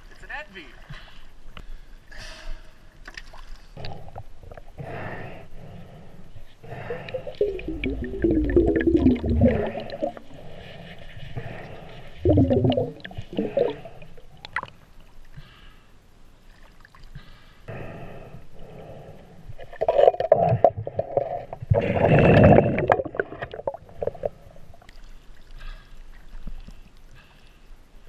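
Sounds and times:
water gurgling underwater: 0:06.7 - 0:10.4, 0:12.2 - 0:14.8, 0:19.6 - 0:25.0.

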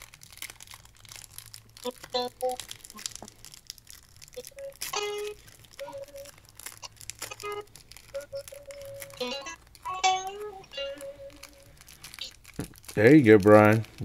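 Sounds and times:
wrapper crinkling and tearing: 0:00.0 - 0:14.0.

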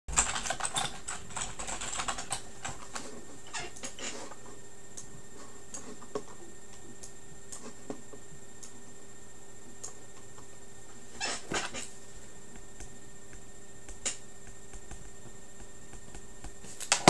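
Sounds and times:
typing on computer keyboard: 0:00.1 - 0:02.8.

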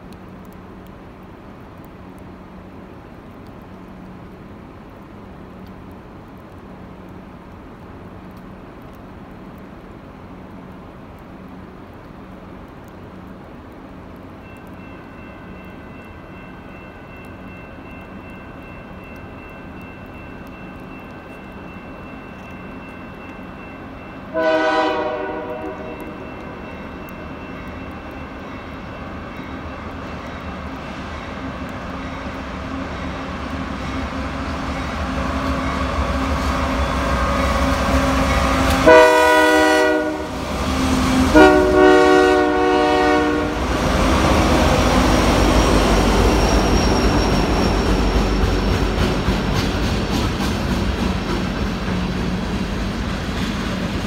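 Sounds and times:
diesel locomotives rumbling: 0:00.0 - 0:54.0
train air horn blasts: 0:24.3 - 0:26.7, 0:36.9 - 0:43.7.

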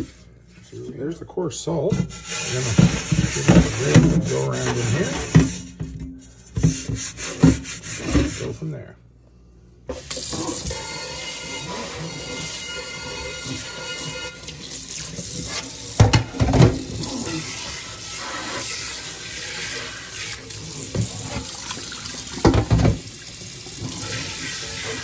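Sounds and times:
faucet spray into a pan: 0:10.0 - 0:25.0.

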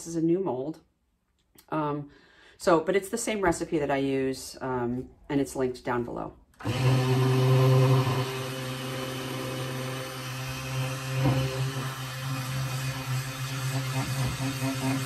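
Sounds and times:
stick blender humming: 0:06.6 - 0:15.0.

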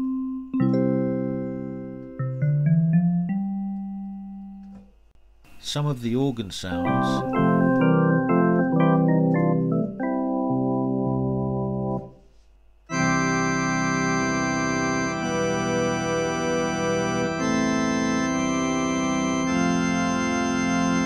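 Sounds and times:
organ chords: 0:00.0 - 0:04.9, 0:05.5 - 0:12.2, 0:12.9 - 0:21.0.

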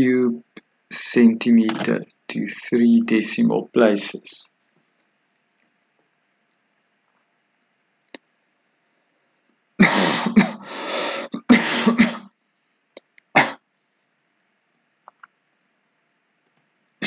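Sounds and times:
person coughing: 0:09.8 - 0:12.3.

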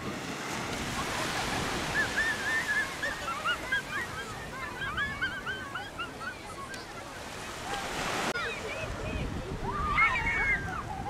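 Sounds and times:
surf washing on beach: 0:00.0 - 0:11.0.

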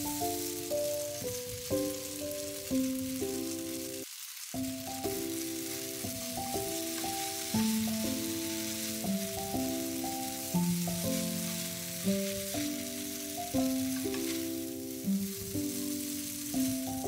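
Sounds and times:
chopsticks stirring: 0:00.0 - 0:17.0
noodles sizzling in a frying pan: 0:00.0 - 0:17.0
background music: 0:04.6 - 0:17.0.

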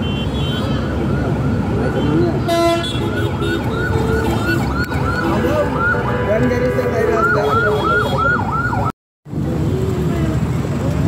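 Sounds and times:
traffic rumble: 0:00.0 - 0:11.0
siren horn warbling: 0:01.1 - 0:08.9.

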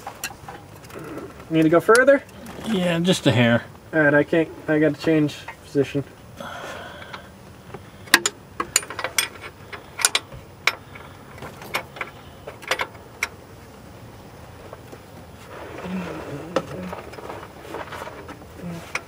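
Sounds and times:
light metallic clicks and knocks: 0:07.0 - 0:13.4.

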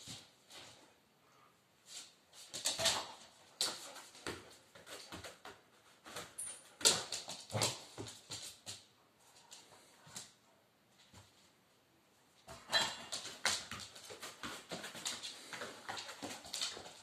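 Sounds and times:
dogs scuffling: 0:01.9 - 0:10.4, 0:12.4 - 0:17.0.

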